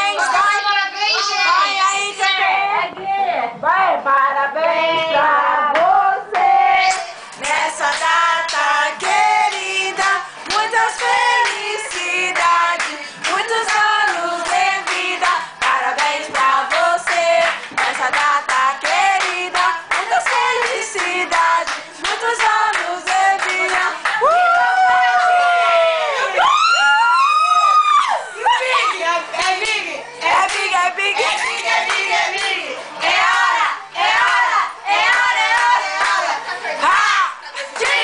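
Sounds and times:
group singing birthday song: 0.0s - 26.3s, 28.4s - 38.0s
rhythmic hand clapping: 5.7s - 24.6s, 29.4s - 36.5s, 37.6s - 38.0s.

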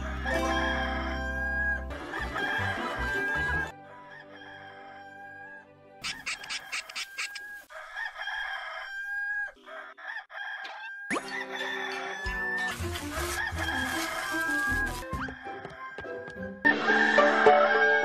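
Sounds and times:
cartoon music: 0.0s - 3.7s
rooster crowing: 0.0s - 18.0s.

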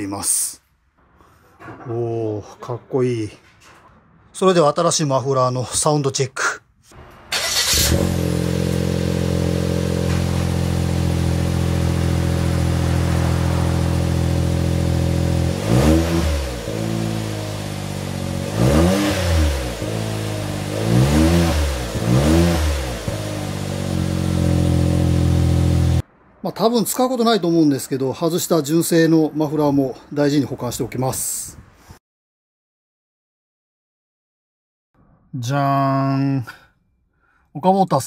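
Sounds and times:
car engine idling: 7.0s - 18.6s, 19.6s - 26.0s
engine revving: 7.0s - 26.0s.

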